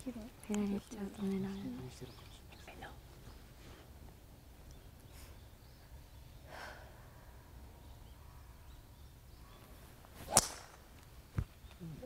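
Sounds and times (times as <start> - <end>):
golf club swish: 10.2 - 10.8
golf club striking ball: 10.3 - 10.9.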